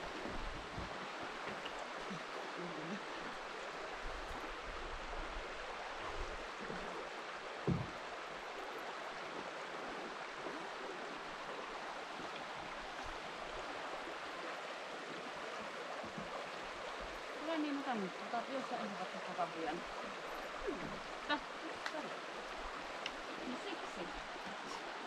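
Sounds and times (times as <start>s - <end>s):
river rapids rushing: 0.0s - 25.0s
low thump: 7.6s - 8.0s.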